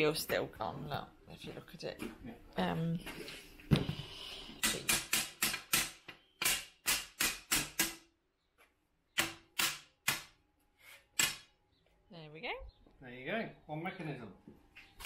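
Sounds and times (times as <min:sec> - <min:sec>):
hammer striking metal frame: 0:04.6 - 0:08.1, 0:09.2 - 0:10.4.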